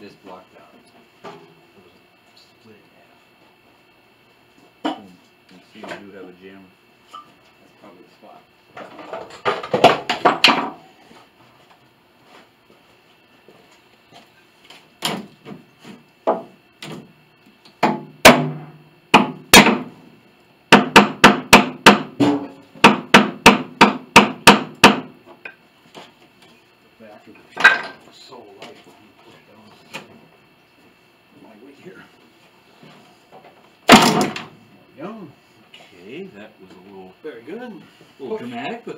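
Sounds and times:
hammer blows on wood: 17.8s - 20.0s.

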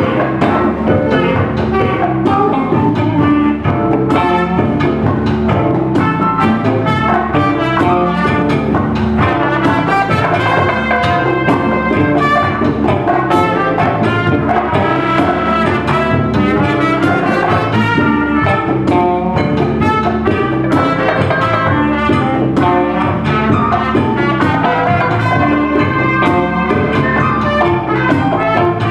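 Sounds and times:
live jazz band playing: 0.0s - 28.9s
saxophone: 0.0s - 28.9s
trumpet: 0.0s - 28.9s.

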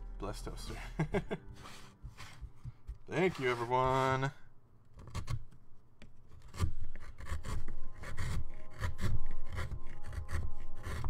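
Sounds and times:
rubbing and scraping on desk: 1.6s - 4.4s.

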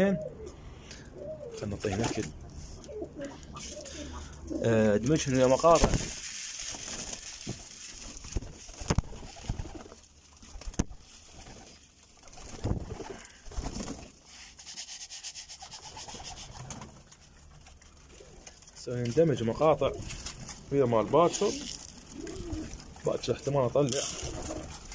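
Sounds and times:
pigeons cooing: 0.0s - 4.8s, 11.3s - 13.8s, 21.2s - 23.1s, 24.0s - 24.9s.

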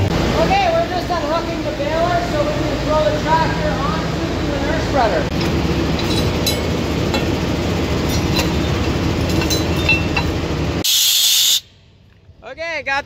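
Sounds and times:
tractor engine idling: 0.0s - 10.8s
light metal clinks: 5.4s - 7.4s, 8.0s - 10.5s
loud hiss: 10.8s - 11.8s.

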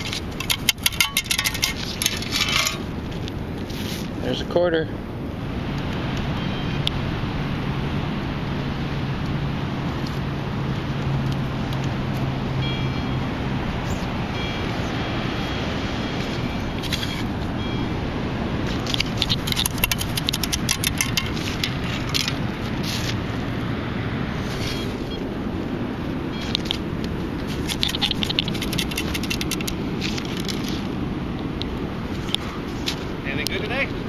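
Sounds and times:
sand rattling in metal scoop: 0.0s - 2.9s, 19.1s - 23.1s, 27.5s - 30.8s
steady rushing background: 0.0s - 34.0s.

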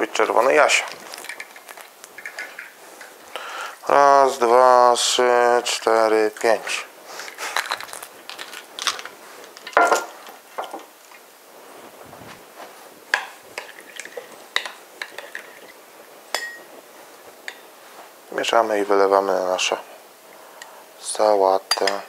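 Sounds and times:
glassware and kitchen items clinking: 9.6s - 10.8s, 16.3s - 16.7s
metal spoon clinking against glass bowl: 16.3s - 16.6s.

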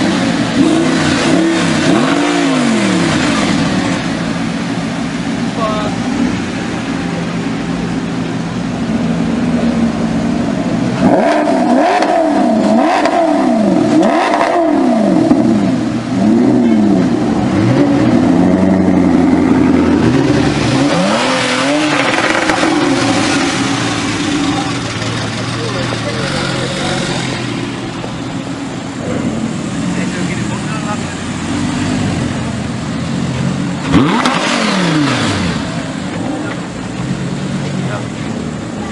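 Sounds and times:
sports car engine revving: 0.0s - 38.9s.

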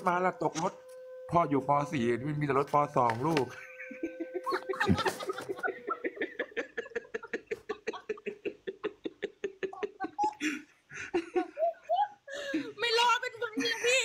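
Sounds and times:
woman laughing: 3.6s - 14.0s.

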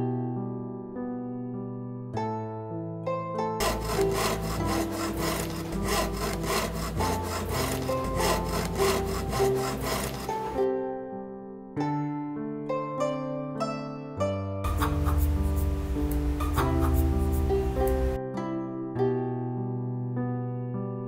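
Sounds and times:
soft plucked-string music: 2.0s - 20.6s
bow drill rasping: 3.6s - 10.6s, 14.7s - 18.2s.

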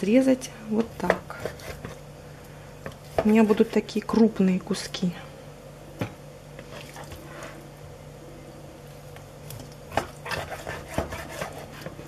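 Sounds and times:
knife cutting meat on board: 9.9s - 12.0s.

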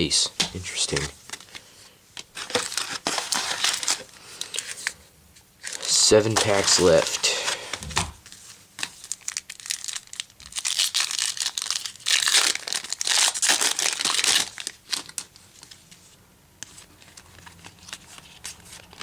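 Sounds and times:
foil wrapper tearing and crinkling: 2.3s - 5.0s, 8.8s - 15.4s.

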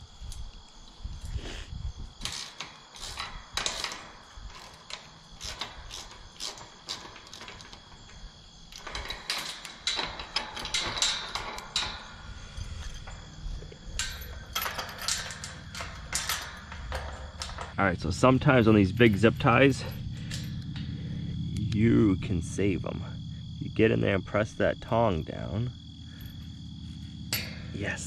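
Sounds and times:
hanging chain rattling: 2.1s - 23.3s, 24.2s - 28.0s
metal gate clinking and scraping: 2.1s - 23.4s, 24.3s - 28.0s.

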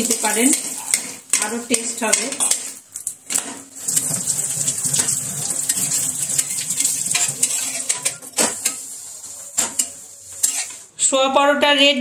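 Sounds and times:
flatbread sizzling in oil: 3.7s - 10.9s
metal spatula scraping pan: 4.9s - 11.0s.

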